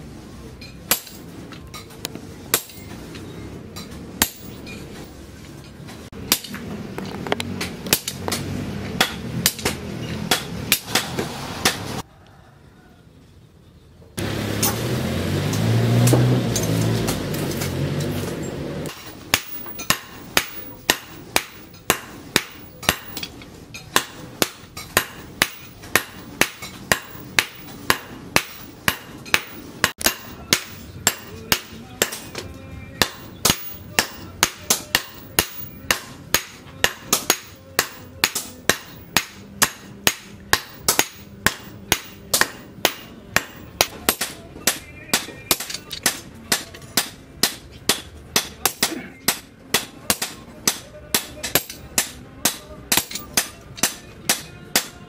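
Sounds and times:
hammer striking hot steel on anvil: 0.6s - 1.9s, 2.5s - 3.0s, 3.8s - 4.9s, 6.2s - 6.7s, 7.6s - 12.0s, 18.8s - 55.0s.

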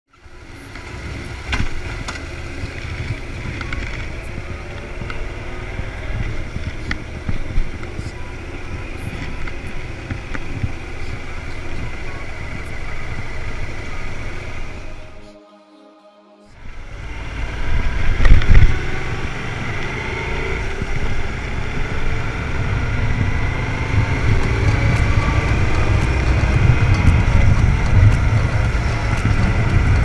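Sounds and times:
motorcycle engine running: 0.1s - 15.3s, 16.6s - 30.0s
wind buffeting microphone: 16.6s - 30.0s.

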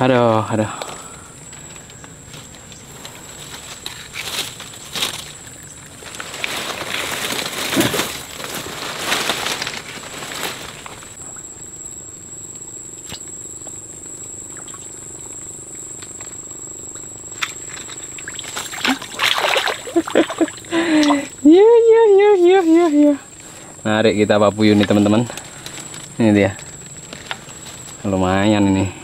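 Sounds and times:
leaves and branches rustling: 0.0s - 11.6s, 13.3s - 29.0s
water splashing: 17.4s - 21.1s.

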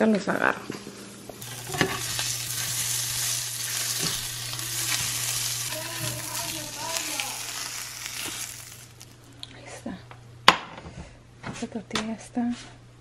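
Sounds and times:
sausages sizzling in a pan: 1.0s - 9.3s
spatula stirring in a pan: 1.4s - 9.1s.

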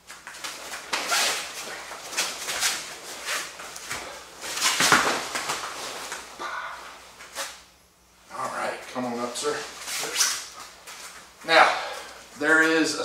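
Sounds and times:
uniforms rustling and snapping: 0.0s - 6.4s
hands slapping: 4.6s - 6.2s.

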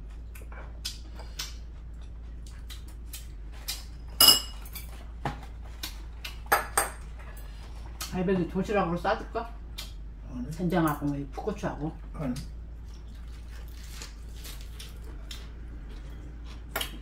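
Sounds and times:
utensils clinking on ceramic bowls: 4.2s - 5.0s.

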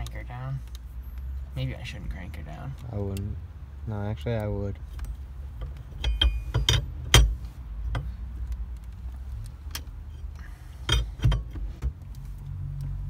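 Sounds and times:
lug wrench clinking on metal: 4.9s - 8.2s, 9.7s - 11.6s.

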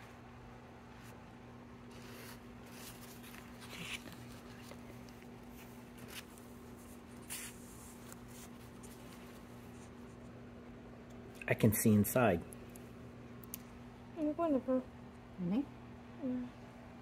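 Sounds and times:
steady low hum: 0.0s - 17.0s
paper towel rustling: 1.9s - 10.1s.

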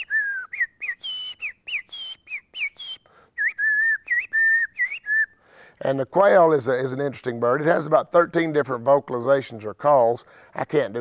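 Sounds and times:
man whistling birdsong: 0.0s - 5.4s.

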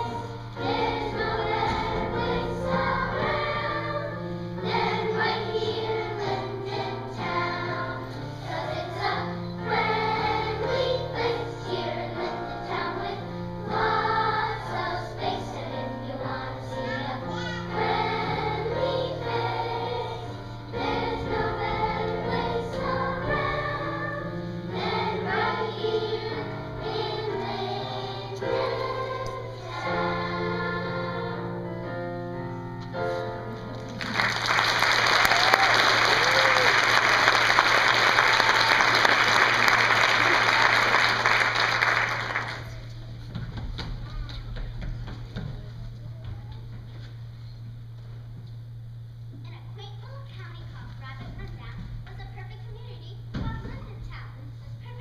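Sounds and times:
children's choir singing: 0.0s - 32.0s
musical accompaniment with bass: 17.8s - 34.1s.

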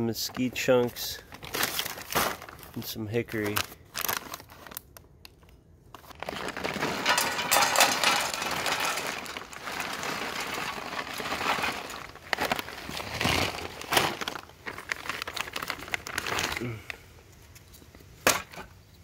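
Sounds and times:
paper bags crinkling: 0.1s - 17.0s
hands digging through wood chips: 6.1s - 16.8s.

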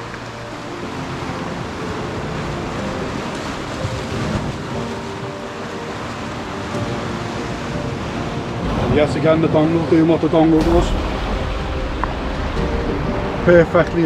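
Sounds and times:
surf breaking against rocks: 0.0s - 14.0s
wind buffeting microphone: 0.0s - 14.0s.

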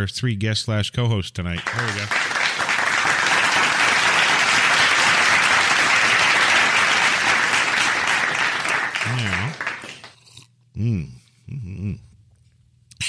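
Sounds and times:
audience applause: 1.6s - 10.2s.

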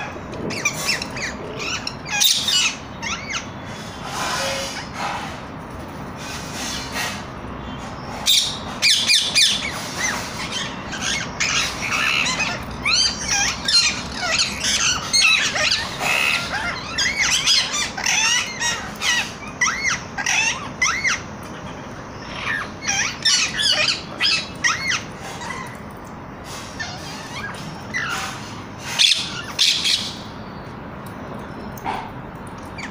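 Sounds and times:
parakeets squawking: 0.0s - 3.5s, 8.2s - 25.8s, 26.7s - 30.3s.

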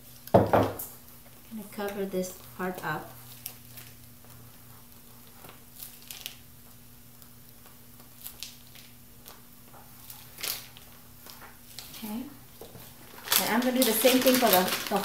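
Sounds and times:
steady low hum: 0.0s - 15.0s
plastic pastry bag crinkling: 1.2s - 15.0s.

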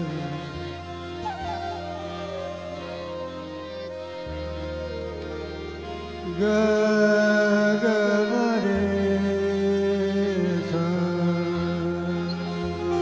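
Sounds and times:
man singing: 0.0s - 3.0s, 6.2s - 13.0s
harmonium playing held notes: 0.0s - 13.0s.

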